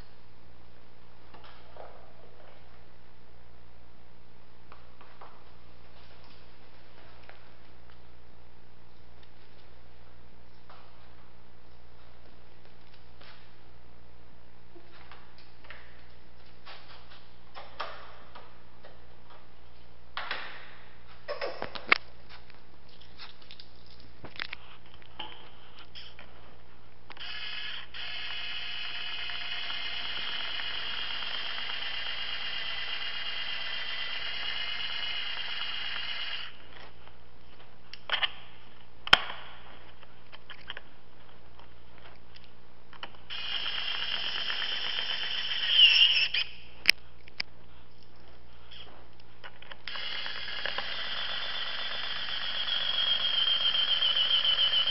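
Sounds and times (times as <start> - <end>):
clicks of tools and parts: 22.9 - 26.3
electric driver whining: 27.1 - 36.6, 43.3 - 46.5, 49.9 - 54.9.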